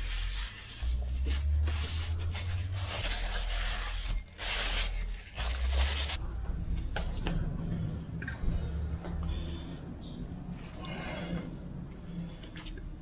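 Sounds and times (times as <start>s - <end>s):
low rumble: 5.4s - 13.0s.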